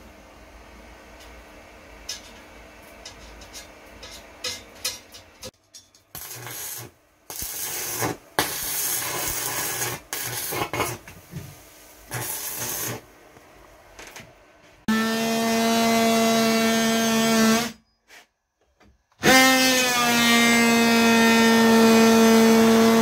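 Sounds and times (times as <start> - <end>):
welding arc crackling: 6.1 - 13.2.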